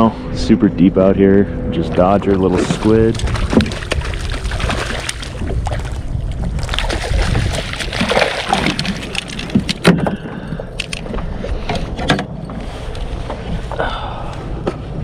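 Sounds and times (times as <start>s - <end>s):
wind buffeting microphone: 0.0s - 13.9s
fish thrashing and splashing: 2.0s - 11.2s.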